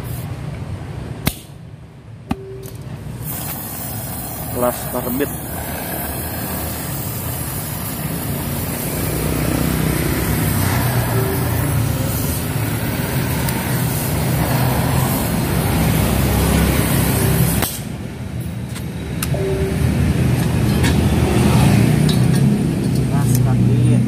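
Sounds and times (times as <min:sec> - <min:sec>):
welding torch flame hissing: 0:03.2 - 0:18.0.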